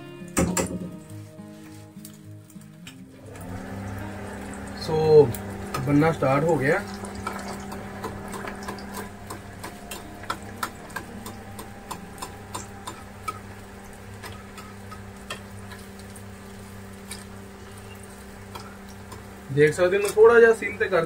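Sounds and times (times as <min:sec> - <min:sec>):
food deep-frying in oil: 0:02.0 - 0:21.0
steady low hum: 0:03.3 - 0:21.0
spoon tapping against pan: 0:07.3 - 0:16.1, 0:18.1 - 0:19.4.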